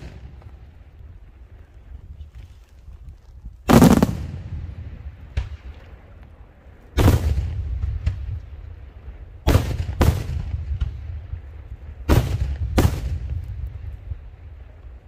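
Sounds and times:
fireworks booming: 0.0 - 0.8, 3.6 - 6.1, 6.9 - 14.3.

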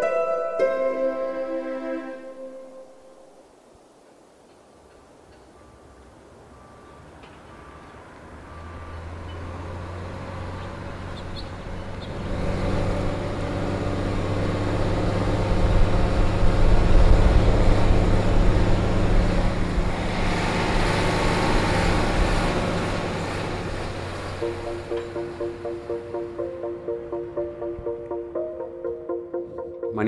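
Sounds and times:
diesel engine running: 8.4 - 27.6.

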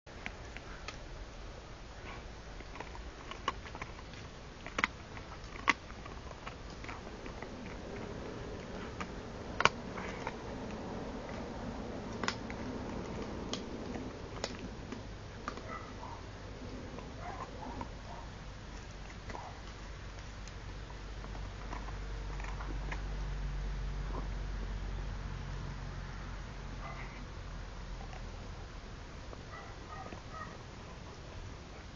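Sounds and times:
dog gnawing a bone: 1.9 - 25.7.

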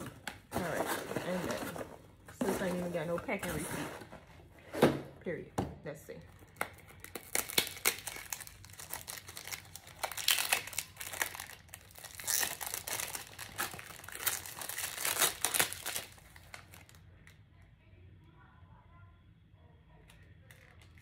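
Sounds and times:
plastic packaging crinkling: 0.0 - 4.1, 6.3 - 17.0.

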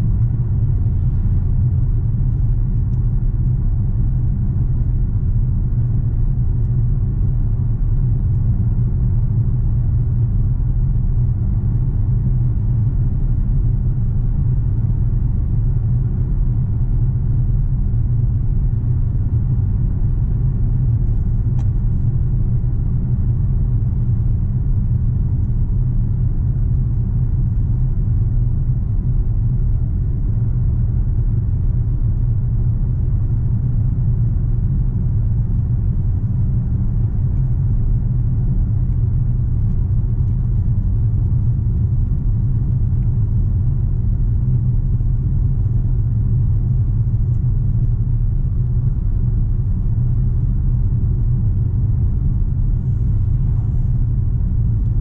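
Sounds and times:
car engine droning in cabin: 0.0 - 55.0.

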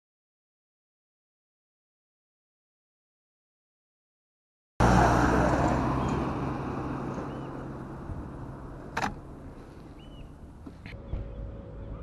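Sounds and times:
vehicle engine driving away: 4.8 - 12.0.

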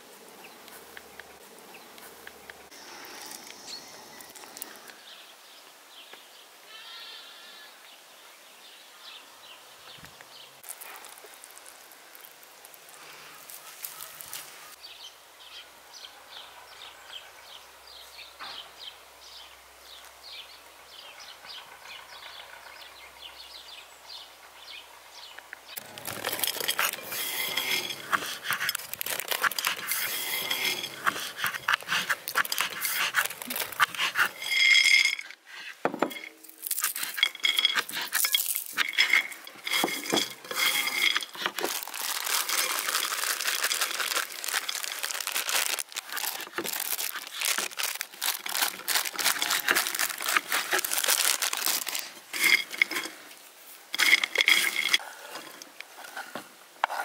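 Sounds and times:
charcoal crackling: 10.6 - 14.8, 25.8 - 55.6.

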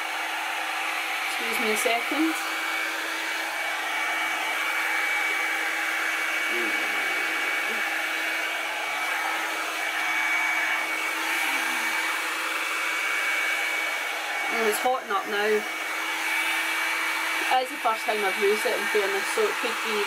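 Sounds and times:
hot-air brush blowing: 0.0 - 20.0
motor whine: 0.2 - 14.7.

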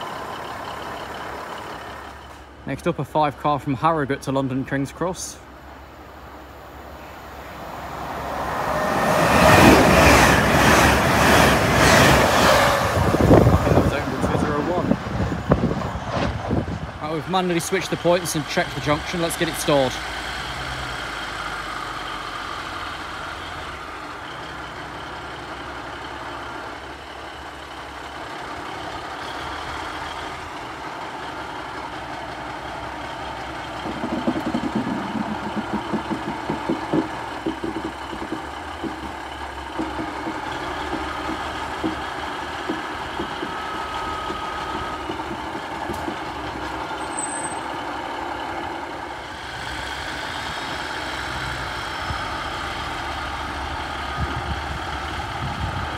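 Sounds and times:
train diesel engines running: 0.0 - 55.9
wheels clattering on rails: 7.9 - 55.9.

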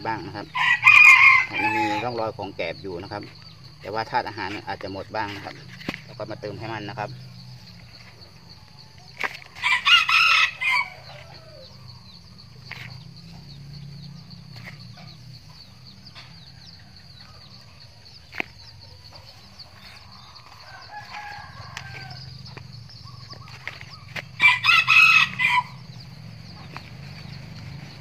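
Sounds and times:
steady high-pitched chirping: 0.0 - 28.0.

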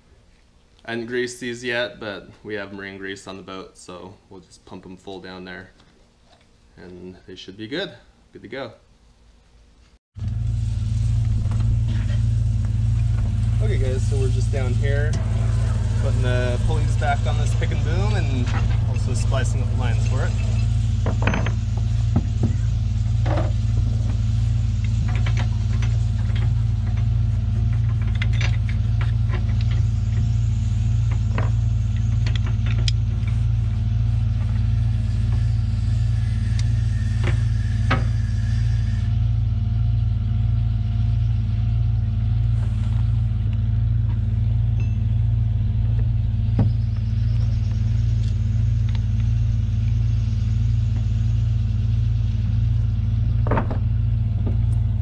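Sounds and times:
low engine hum: 10.2 - 55.0.

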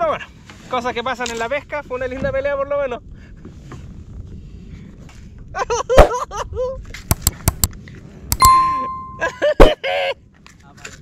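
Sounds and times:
sharp clicks: 7.1 - 7.7.

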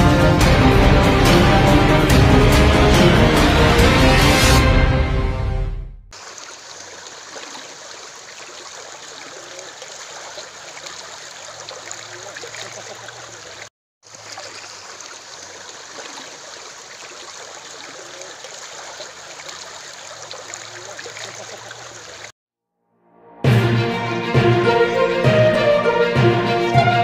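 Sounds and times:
water rushing down channel: 6.1 - 22.3.

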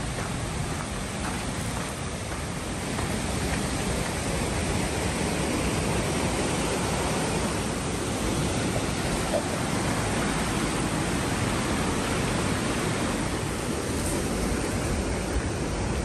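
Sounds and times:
river rapids rushing: 0.0 - 16.0.

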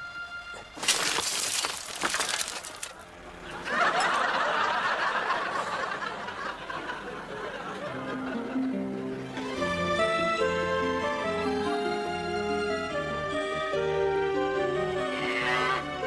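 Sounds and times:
car window glass smashing: 0.7 - 3.0
audience laughter: 3.4 - 9.4.

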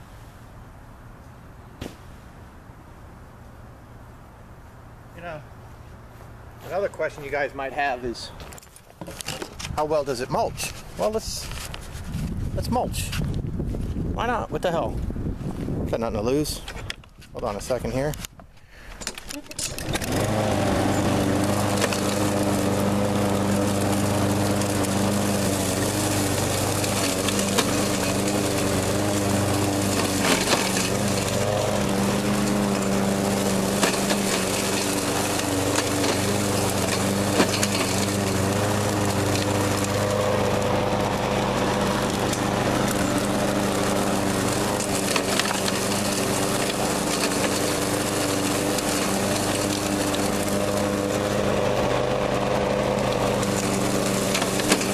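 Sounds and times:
lawn mower engine running: 18.8 - 54.9.

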